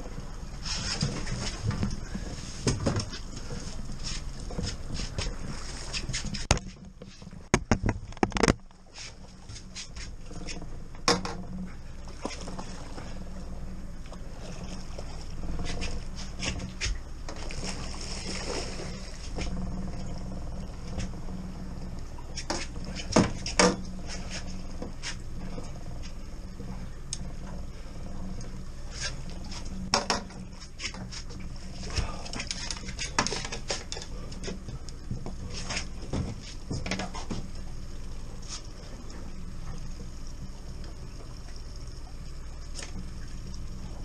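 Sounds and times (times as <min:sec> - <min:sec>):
outboard motor hum: 0:00.0 - 0:44.0
fishing gear knocking on boat: 0:07.5 - 0:08.6.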